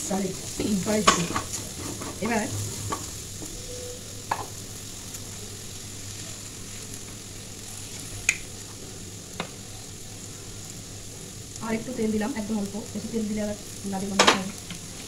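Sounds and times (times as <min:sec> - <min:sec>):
vegetables sizzling in oil: 0:00.0 - 0:15.0
wooden spatula stirring: 0:01.0 - 0:03.2.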